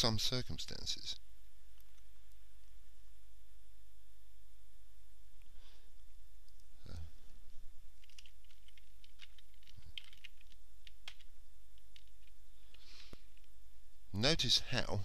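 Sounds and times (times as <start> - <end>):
low electrical hum: 0.0 - 15.0
computer keyboard clicks: 8.0 - 12.4.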